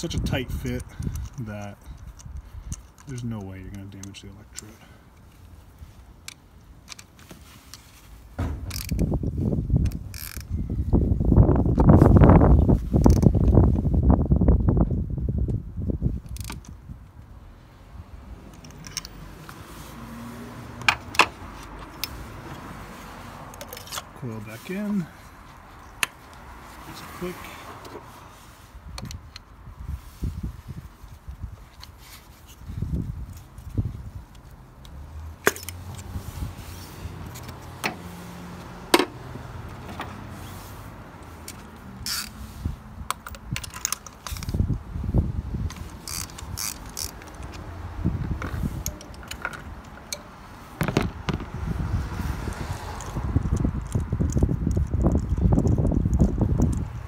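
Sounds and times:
hand ratchet clicking: 41.5s - 42.4s, 45.8s - 47.6s.

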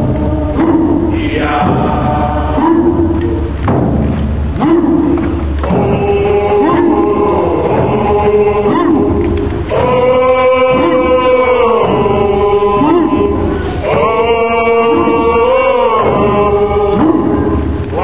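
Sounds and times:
group chanting in unison: 0.0s - 3.7s, 4.6s - 18.0s
hand drums: 0.0s - 18.0s.

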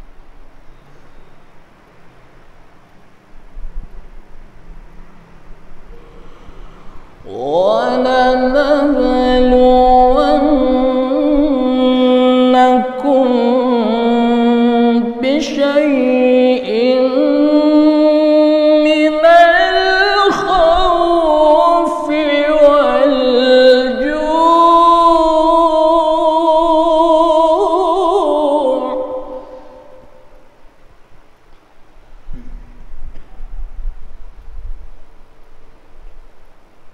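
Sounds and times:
man reciting melodically: 7.2s - 30.3s.

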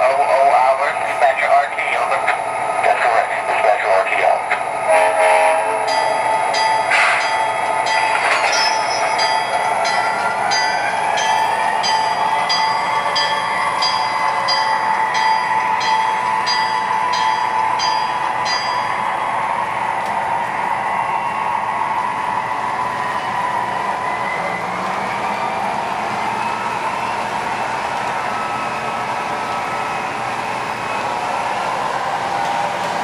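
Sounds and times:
diesel engine drone: 0.0s - 8.8s
locomotive bell ringing: 4.8s - 19.7s.

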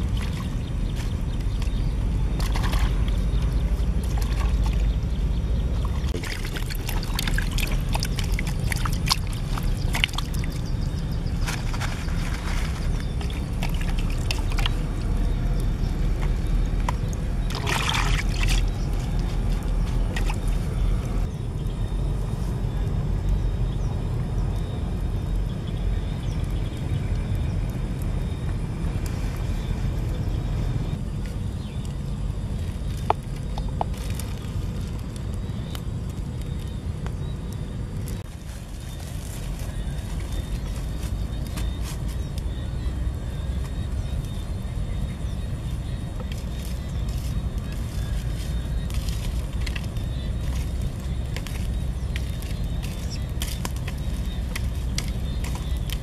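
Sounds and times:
water dripping and splashing: 0.0s - 5.2s, 5.8s - 10.8s, 11.4s - 20.6s, 46.1s - 56.0s
low rumble: 0.0s - 56.0s.

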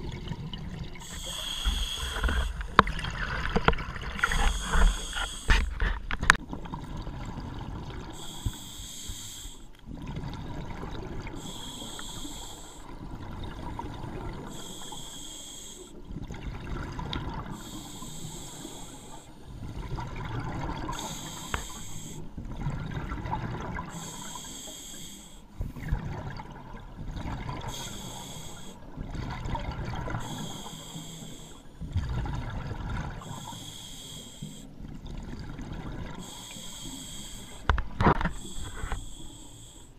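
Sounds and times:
regulator hissing inhales: 1.0s - 2.7s, 4.2s - 5.8s, 8.2s - 9.7s, 11.4s - 12.9s, 14.5s - 16.0s, 17.6s - 19.4s, 20.9s - 22.3s, 23.9s - 25.6s, 27.7s - 28.8s, 30.2s - 31.7s, 33.2s - 34.7s, 36.2s - 37.7s, 38.3s - 39.9s.

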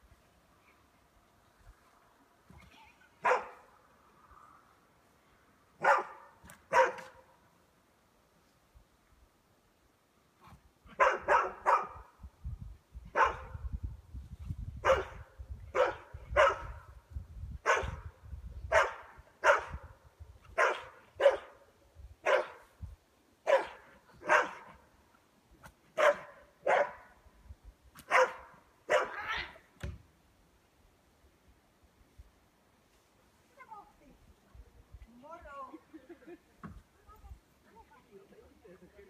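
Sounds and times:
dog barking: 3.2s - 3.6s, 5.8s - 7.2s, 10.9s - 12.1s, 13.1s - 13.6s, 14.8s - 16.8s, 17.6s - 18.0s, 18.7s - 19.8s, 20.6s - 21.6s, 22.2s - 22.6s, 23.5s - 24.7s, 26.0s - 27.1s, 28.1s - 29.2s.

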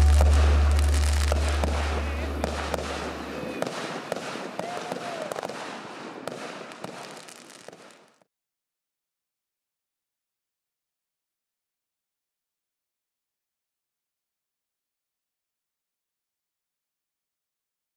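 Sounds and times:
low music note: 0.0s - 3.3s
fireworks popping and crackling: 0.0s - 8.3s.

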